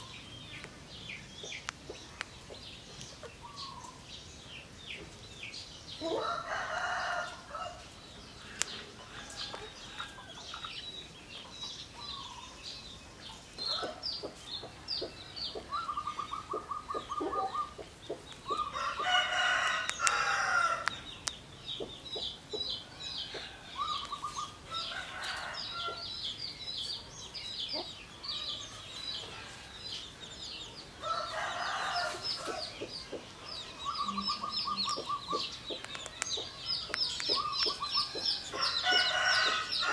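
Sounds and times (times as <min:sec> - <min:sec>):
small birds chirping: 0:00.0 - 0:39.9
roosters crowing: 0:06.0 - 0:07.9, 0:18.5 - 0:21.1, 0:22.7 - 0:26.3, 0:30.9 - 0:32.9, 0:37.4 - 0:39.9.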